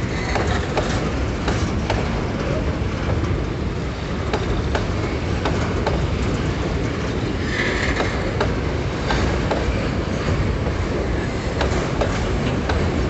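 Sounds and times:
train wheels rumbling on rail: 0.0 - 13.0
wheels clicking over rail joints: 0.0 - 13.0.

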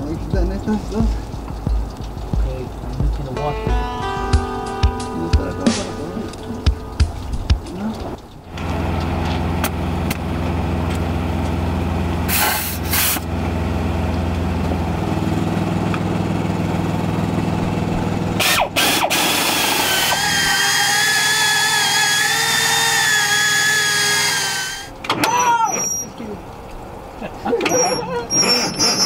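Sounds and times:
drill boring into steel: 18.4 - 24.9, 28.3 - 29.0
wavering high-pitched squeal: 18.4 - 26.2, 27.7 - 29.0.

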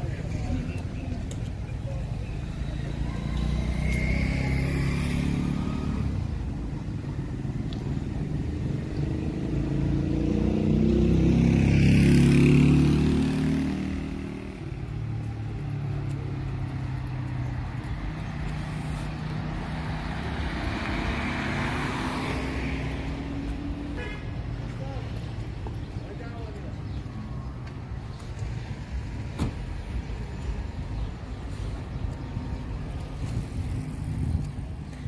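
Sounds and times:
vehicle engines running: 0.0 - 35.0
vehicle passing by: 2.4 - 24.0.

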